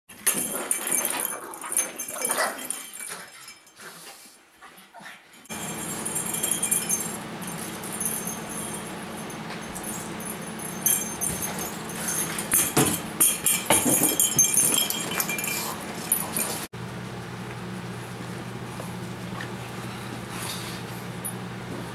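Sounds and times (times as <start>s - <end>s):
steady low hum: 5.5s - 21.9s.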